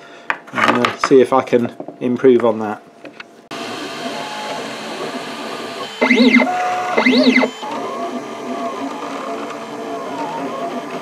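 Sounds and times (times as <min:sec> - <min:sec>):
printer mechanical whir: 0:03.5 - 0:11.0
stepper motor whines: 0:03.6 - 0:11.0.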